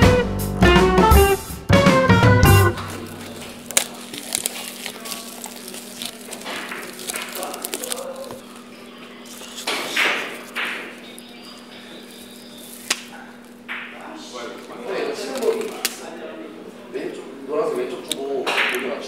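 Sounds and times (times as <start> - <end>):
plastic wrap rustling: 2.7 - 16.4.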